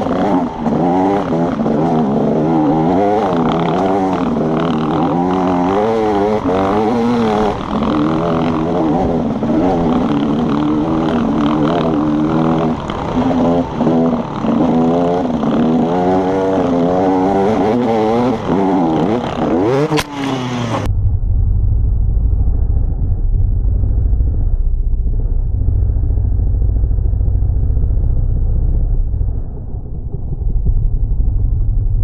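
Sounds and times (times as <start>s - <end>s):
dirt bike engine revving: 0.0s - 20.9s
muffled dull low rumble: 20.8s - 32.0s.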